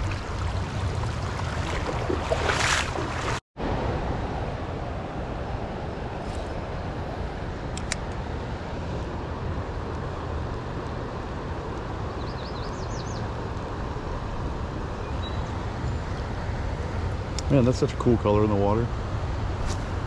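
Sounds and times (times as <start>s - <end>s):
fast-flowing river: 0.0s - 7.2s
sharp click: 7.7s - 8.2s
bird chirping: 12.2s - 13.2s, 15.0s - 16.0s.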